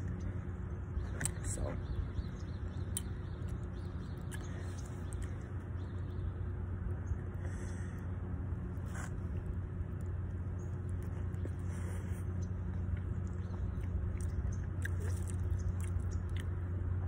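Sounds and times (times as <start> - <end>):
steady low hum: 0.0 - 17.0
person chewing: 4.2 - 5.4, 12.9 - 16.6.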